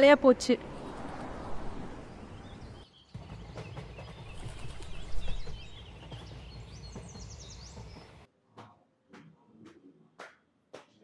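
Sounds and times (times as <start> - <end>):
small birds chirping: 2.0 - 8.3.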